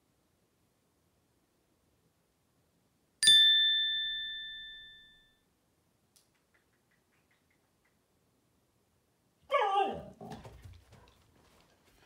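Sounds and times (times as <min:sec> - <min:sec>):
bright bell ding: 0:03.2 - 0:05.4.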